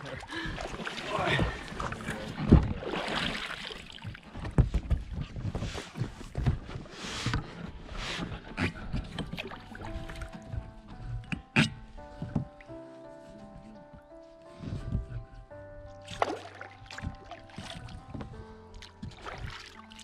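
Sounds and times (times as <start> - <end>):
oars splashing in water: 0.0 - 12.7, 16.0 - 20.0
heavy thump in inflatable boat: 0.5 - 3.4, 4.1 - 7.7, 12.1 - 12.6, 16.1 - 18.4.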